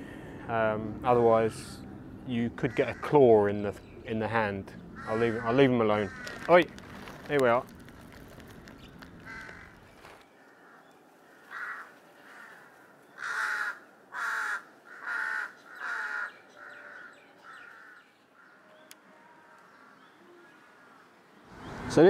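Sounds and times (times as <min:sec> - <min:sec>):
crows cawing: 0:02.6 - 0:03.4, 0:04.9 - 0:18.8.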